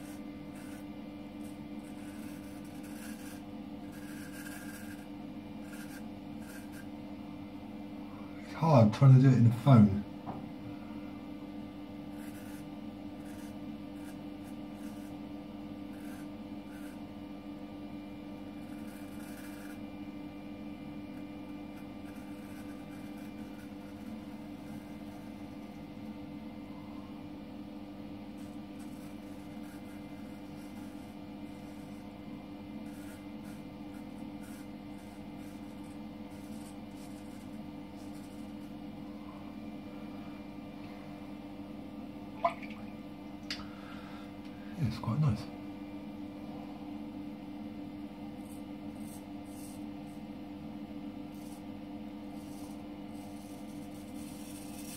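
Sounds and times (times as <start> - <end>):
razor scraping stubble: 0.0 - 6.9, 12.1 - 15.2, 15.9 - 17.1, 18.5 - 19.9, 21.0 - 25.8, 28.4 - 32.2, 32.8 - 38.7, 48.4 - 50.2, 51.3 - 54.9
steady hum: 0.0 - 54.9.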